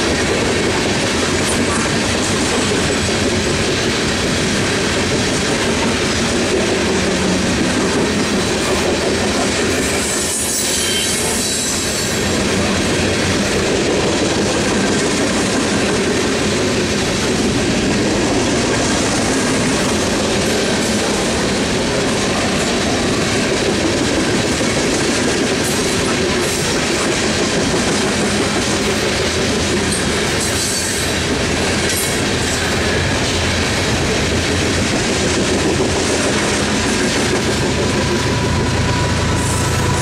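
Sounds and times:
train cars rumbling on rails: 0:00.0 - 0:40.0
high wheel squeals: 0:10.0 - 0:12.2, 0:38.0 - 0:40.0.

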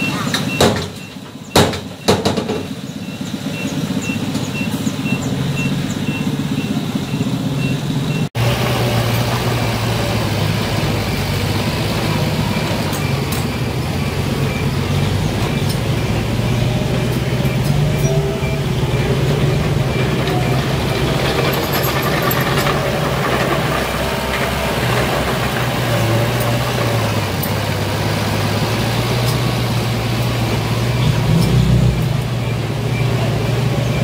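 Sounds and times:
diesel truck engines running: 0:00.0 - 0:34.0
sharp knocks: 0:00.5 - 0:02.8
faint high beeping: 0:13.0 - 0:22.1.

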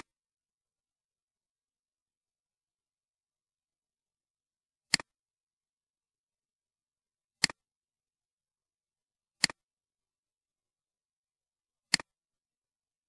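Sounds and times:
mouse button clicks: 0:07.4 - 0:07.6, 0:09.4 - 0:09.6, 0:11.9 - 0:12.2.

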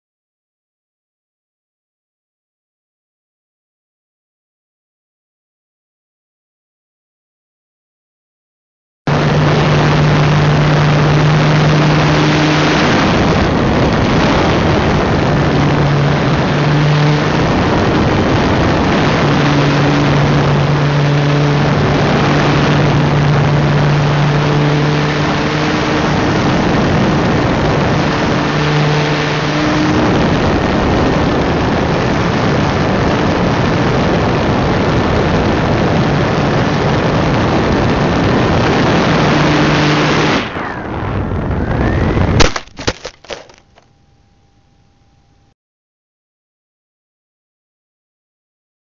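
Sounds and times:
wind rushing over camera: 0:09.1 - 0:44.0
model plane motor humming: 0:09.2 - 0:32.6.

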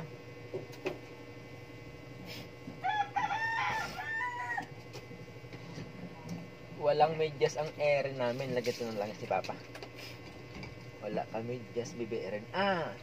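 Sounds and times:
rooster crowing: 0:02.8 - 0:04.8.

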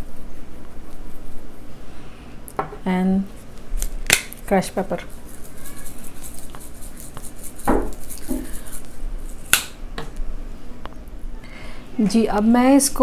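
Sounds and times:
spice shaker rattling: 0:04.2 - 0:09.5
knock: 0:07.7 - 0:08.4.

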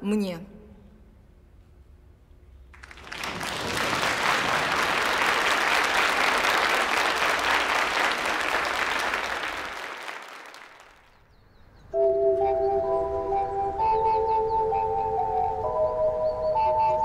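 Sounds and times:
large audience applauding: 0:02.8 - 0:11.2.

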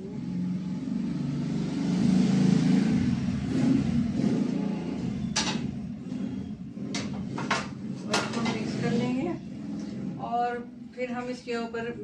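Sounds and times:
motor vehicle engine rumble: 0:00.0 - 0:12.0.

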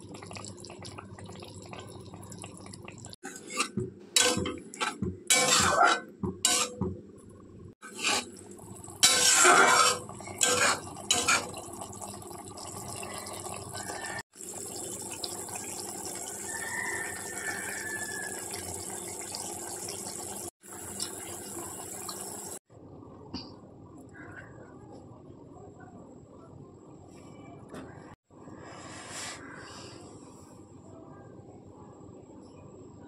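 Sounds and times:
curry bubbling: 0:00.0 - 0:03.2, 0:07.9 - 0:20.5
spatula scraping in a wok: 0:03.3 - 0:06.8, 0:07.8 - 0:08.4, 0:09.0 - 0:11.5.

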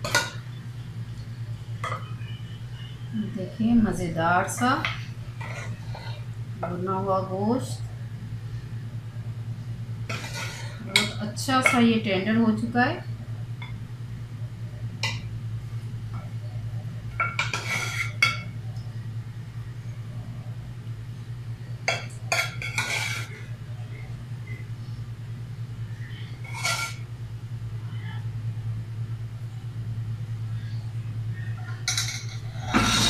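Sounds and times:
steady low hum: 0:00.0 - 0:33.0
metal spoon scraping a dish: 0:10.1 - 0:11.2, 0:17.4 - 0:18.2, 0:22.3 - 0:23.4, 0:26.4 - 0:27.0.

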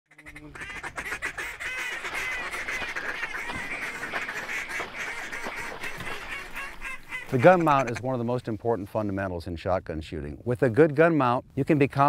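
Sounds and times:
flock of waterfowl calling: 0:00.1 - 0:08.4.

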